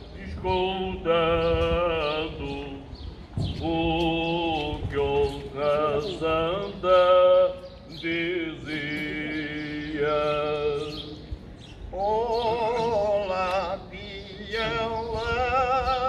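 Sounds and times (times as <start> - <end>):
men's choir singing unaccompanied: 0.0 - 16.0.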